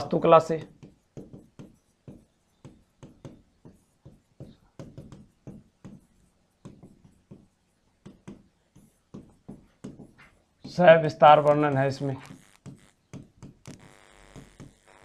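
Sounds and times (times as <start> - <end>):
marker pen writing on whiteboard: 0.0 - 14.8.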